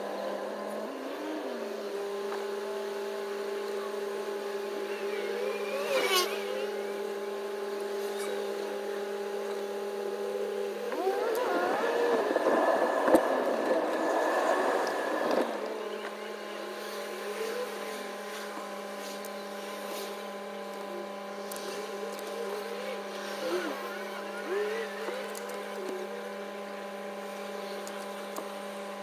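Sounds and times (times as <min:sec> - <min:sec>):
passing traffic: 0:10.9 - 0:16.2.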